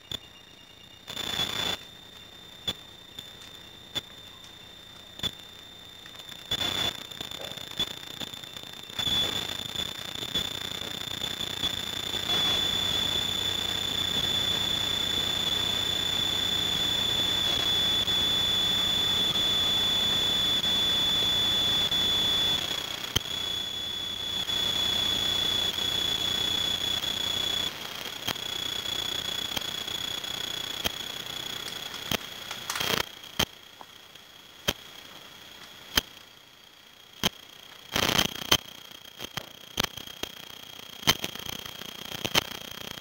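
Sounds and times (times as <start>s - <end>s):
high-pitched electronic whine: 0.0s - 43.0s
click: 23.1s - 23.3s, 34.6s - 34.8s, 35.6s - 36.2s, 41.0s - 42.5s.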